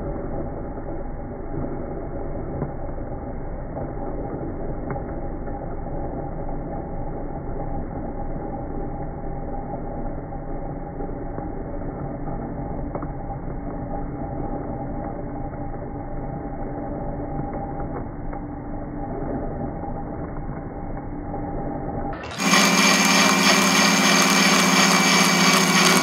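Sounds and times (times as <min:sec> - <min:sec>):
blender running: 0:22.2 - 0:26.0.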